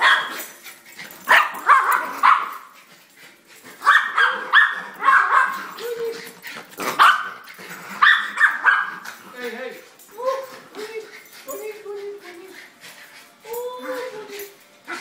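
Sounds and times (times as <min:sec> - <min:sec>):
dogs barking: 0:00.0 - 0:00.5, 0:01.2 - 0:02.8, 0:03.8 - 0:05.8, 0:06.8 - 0:09.2.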